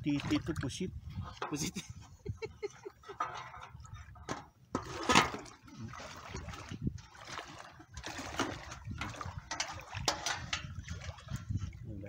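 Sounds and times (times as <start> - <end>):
wading through splashing seawater: 4.8 - 11.9.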